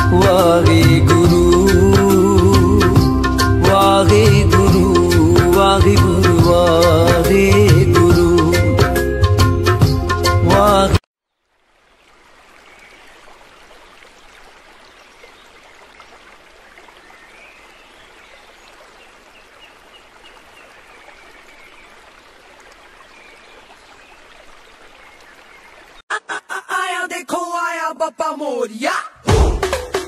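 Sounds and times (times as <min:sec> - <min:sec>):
steady rushing like a stream: 0:11.4 - 0:26.0.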